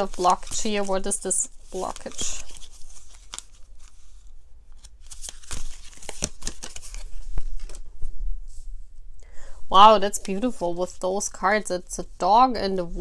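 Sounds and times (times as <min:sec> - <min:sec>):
cards being shuffled: 0:00.0 - 0:07.9.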